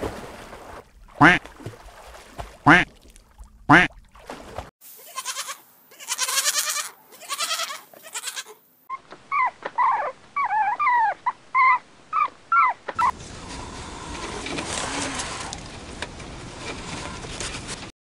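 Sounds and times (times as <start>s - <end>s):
lambs bleating: 5.0s - 8.6s.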